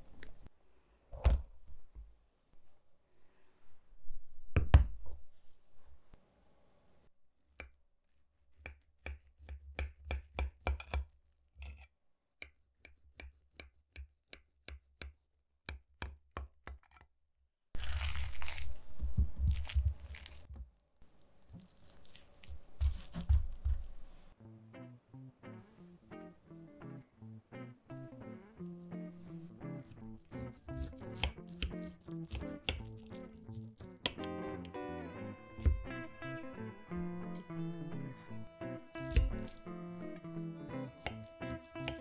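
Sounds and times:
scraping and tearing: 17.8 - 20.5, 21.5 - 24.1
knife cutting crisp crust: 21.6 - 23.9, 29.8 - 34.3, 39.0 - 39.6, 40.8 - 42.0.

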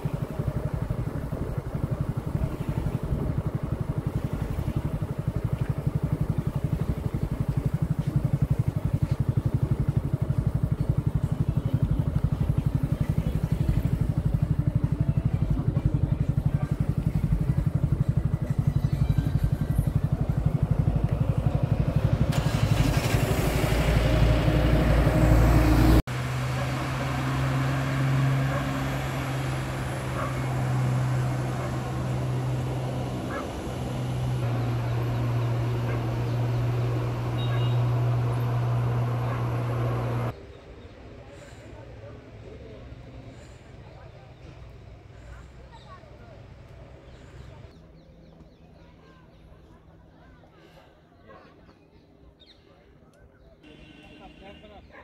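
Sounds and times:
small motor engine running: 0.0 - 40.4.

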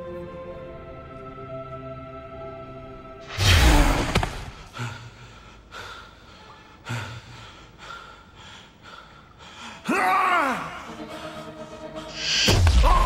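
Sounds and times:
heavy gasping breaths: 4.6 - 10.0.

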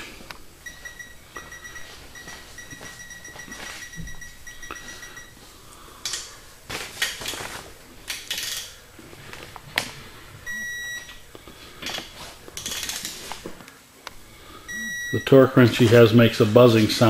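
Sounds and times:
short electronic beep: 0.6 - 5.4, 14.7 - 15.4.

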